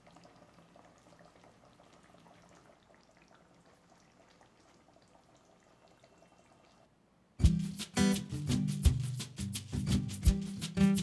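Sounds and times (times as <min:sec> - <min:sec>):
gravy bubbling in a pan: 0:00.0 - 0:06.9.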